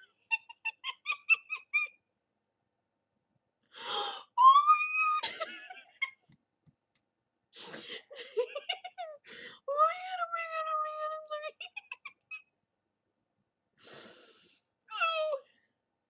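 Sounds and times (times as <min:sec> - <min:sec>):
woman high-pitched squealing wail: 0:04.4 - 0:05.7.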